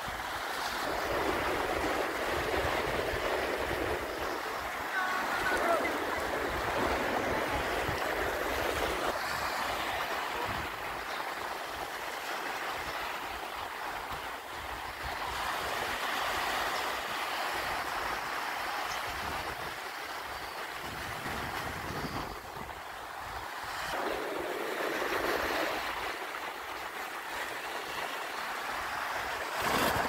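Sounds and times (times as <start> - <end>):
small waves breaking: 0.0 - 30.0
wind buffeting microphone: 0.7 - 9.4.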